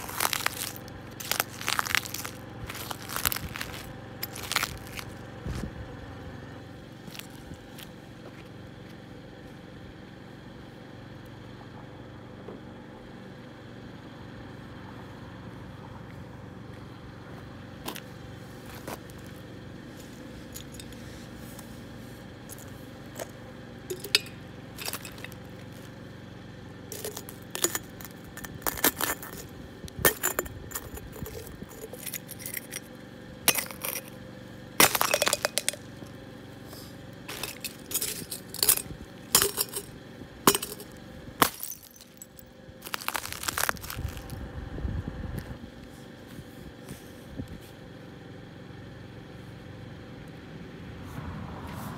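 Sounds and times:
glass crunching under boot: 0:00.0 - 0:05.3, 0:07.0 - 0:07.8, 0:20.0 - 0:21.1, 0:22.5 - 0:26.0, 0:26.9 - 0:34.2, 0:34.8 - 0:44.4
steady low hum: 0:00.0 - 0:51.2.

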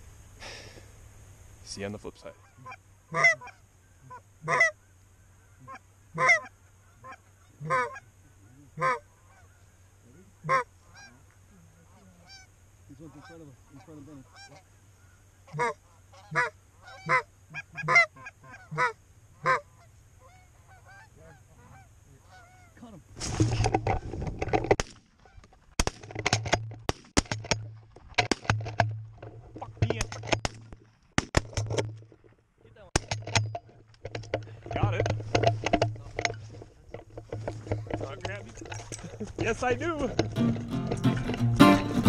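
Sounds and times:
goose honking: 0:02.3 - 0:04.8, 0:05.4 - 0:22.8
sharp cracks: 0:23.2 - 0:37.5
rustling and clatter: 0:23.2 - 0:41.6.

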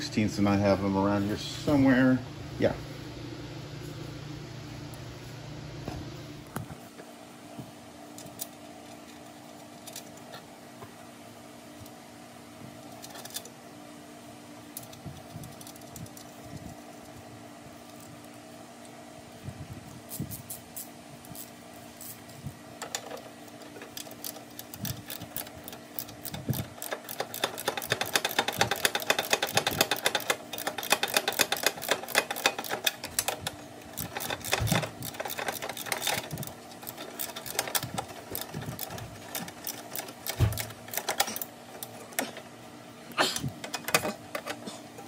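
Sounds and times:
ratchet clicking: 0:22.8 - 0:42.0.

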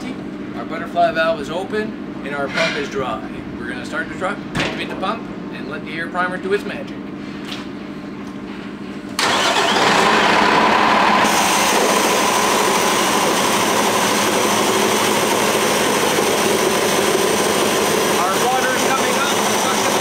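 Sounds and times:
diesel engine starting and running: 0:09.1 - 0:20.0.

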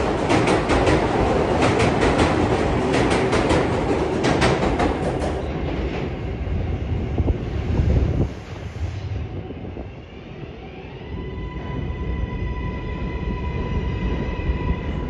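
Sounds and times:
train wheels clicking over rail joints: 0:00.0 - 0:06.2
train rumble: 0:00.0 - 0:15.0.

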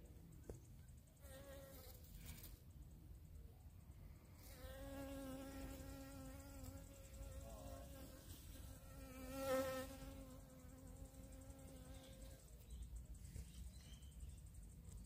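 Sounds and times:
bee wings buzzing: 0:04.5 - 0:12.4.

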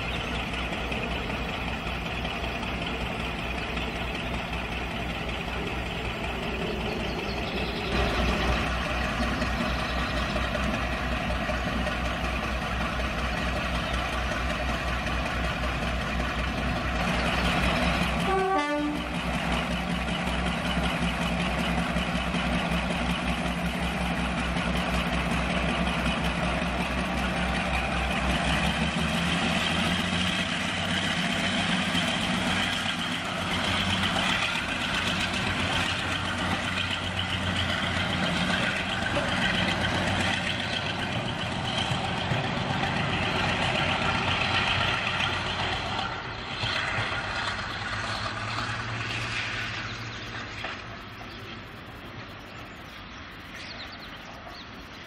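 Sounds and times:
diesel locomotive engines running: 0:00.0 - 0:55.0.

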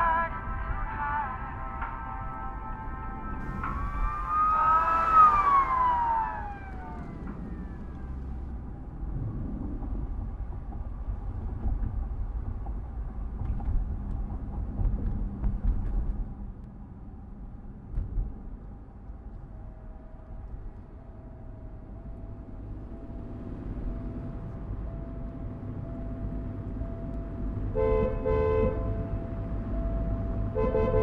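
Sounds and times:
car interior rumble: 0:03.3 - 0:31.0
car horn: 0:03.4 - 0:07.8, 0:27.7 - 0:29.2, 0:30.5 - 0:31.0.

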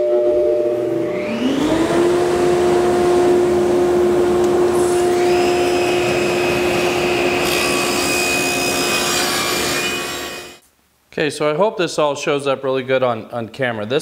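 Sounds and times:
table saw humming: 0:00.1 - 0:10.6
saw blade cutting plywood: 0:01.0 - 0:10.6.

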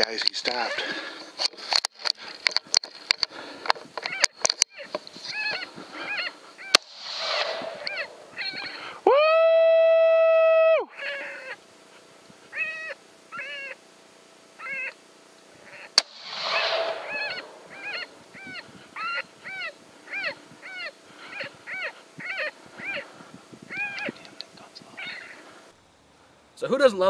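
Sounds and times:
short squealing calls: 0:04.0 - 0:08.9, 0:12.5 - 0:13.8, 0:14.6 - 0:15.0, 0:15.6 - 0:23.1, 0:23.7 - 0:24.3, 0:25.0 - 0:25.4
sharp crack: 0:06.7 - 0:08.8, 0:16.0 - 0:18.3.

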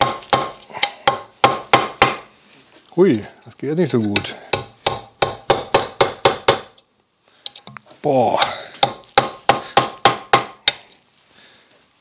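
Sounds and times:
hammer striking metal: 0:04.2 - 0:06.7, 0:08.4 - 0:10.8.

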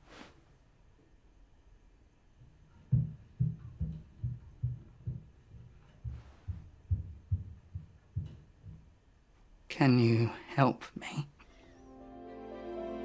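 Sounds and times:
fast muffled thudding pulse: 0:02.9 - 0:09.0.

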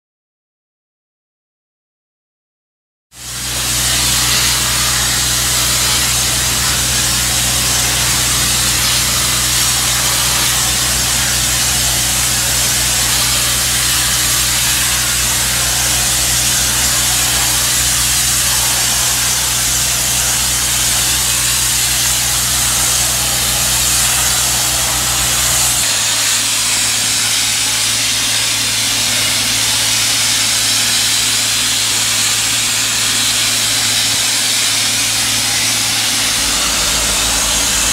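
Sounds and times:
high-pressure steam jet hissing: 0:03.2 - 0:37.9
machine humming: 0:03.2 - 0:37.9.

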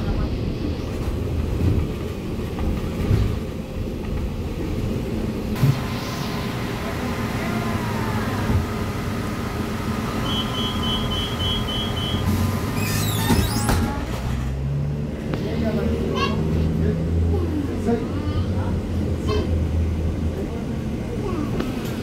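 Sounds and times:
bus engine and road rumble: 0:00.0 - 0:22.0
brief squeal: 0:10.2 - 0:14.0.

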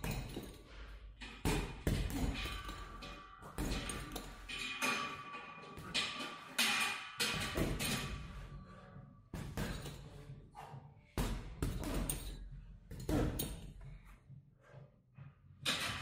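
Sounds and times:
gloves punching heavy bag: 0:00.0 - 0:00.6, 0:01.4 - 0:04.3, 0:09.4 - 0:10.0, 0:11.2 - 0:13.6.

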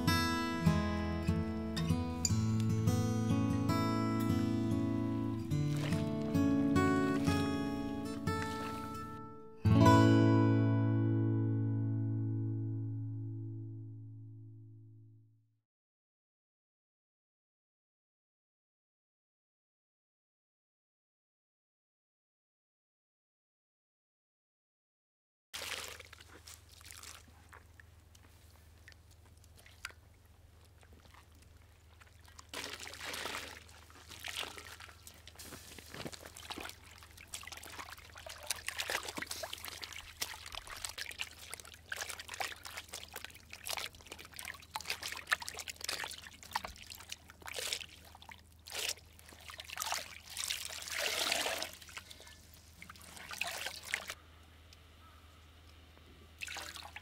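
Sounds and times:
water sloshing: 0:04.6 - 0:09.3, 0:25.6 - 0:54.2, 0:56.4 - 0:57.0
water pouring and dripping: 0:05.3 - 0:09.2, 0:25.6 - 0:54.2, 0:56.4 - 0:57.0
wet cloth rinsed in basin: 0:05.4 - 0:09.2, 0:25.6 - 0:54.2, 0:56.4 - 0:57.0.

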